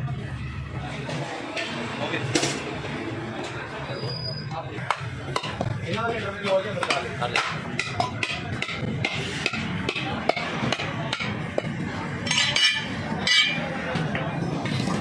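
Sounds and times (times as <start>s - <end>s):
cleavers knocking on chopping blocks: 4.9s - 11.4s.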